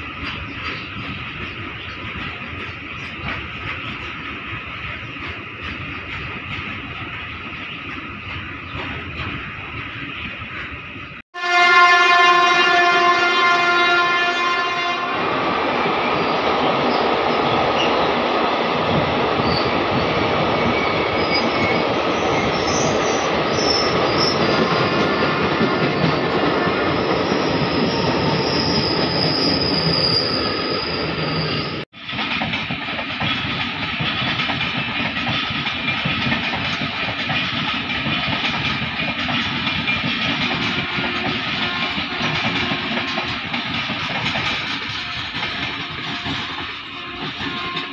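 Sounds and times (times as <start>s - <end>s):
train wheels rumbling on rails: 0.0s - 47.9s
high wheel squeal: 19.4s - 25.2s, 25.8s - 31.8s.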